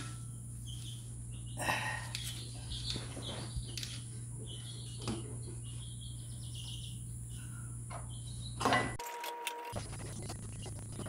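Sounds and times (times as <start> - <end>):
faint chirping: 0.0 - 8.6
steady low hum: 0.0 - 9.0, 9.6 - 11.0.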